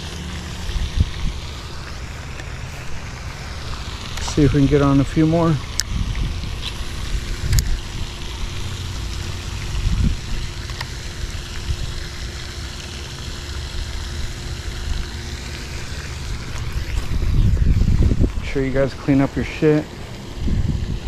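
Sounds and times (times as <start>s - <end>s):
steady background hiss: 0.0s - 21.0s
wind buffeting microphone: 0.6s - 1.6s, 4.2s - 8.1s, 9.6s - 10.6s, 16.3s - 19.0s, 20.4s - 21.0s.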